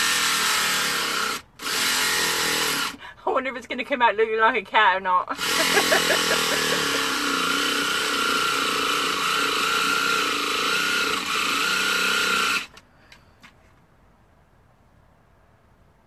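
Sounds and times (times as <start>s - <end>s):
electric jigsaw cutting: 0.0s - 3.0s, 5.3s - 12.8s.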